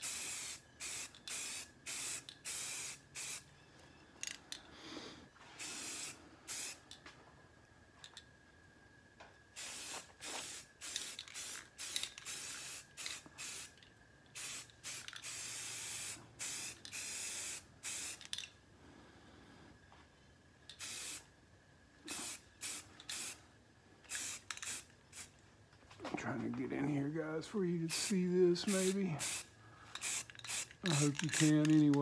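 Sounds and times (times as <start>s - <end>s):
spray paint can hissing: 0.0s - 3.4s, 5.6s - 6.9s, 9.6s - 18.4s, 20.7s - 21.3s, 22.1s - 23.4s, 24.1s - 25.3s, 27.9s - 32.0s.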